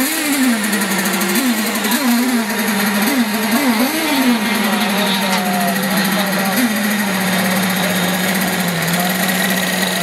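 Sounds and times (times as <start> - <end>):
model boat engines buzzing: 0.0 - 10.0.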